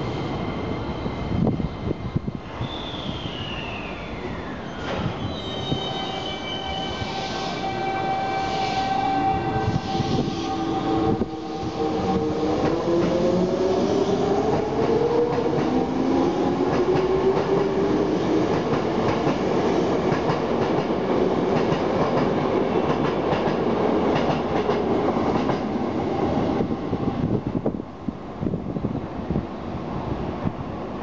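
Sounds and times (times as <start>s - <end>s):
train wheels clattering on rails: 14.4s - 25.8s.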